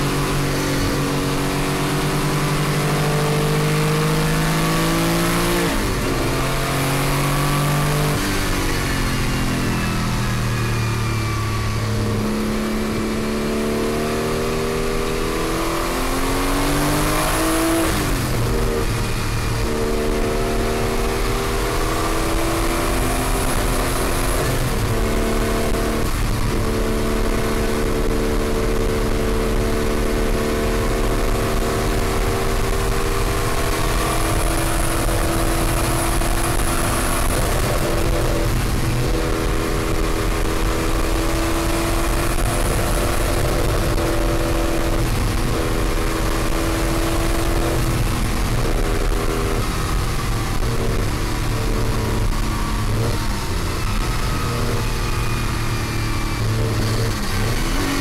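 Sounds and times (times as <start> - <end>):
racing car engine changing gear: 0.0 - 58.0.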